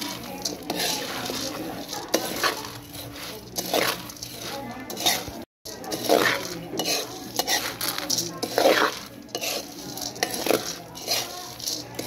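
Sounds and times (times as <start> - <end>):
coffee beans rattling in a pan: 0.0 - 12.0
metal spatula scraping a pan: 0.0 - 12.0.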